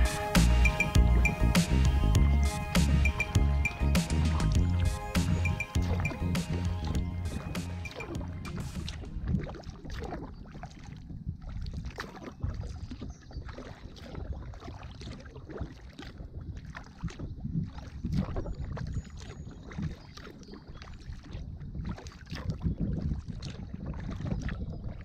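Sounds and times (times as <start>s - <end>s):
paddle splashing water: 0.0s - 25.0s
wind rumble on microphone: 8.1s - 25.0s.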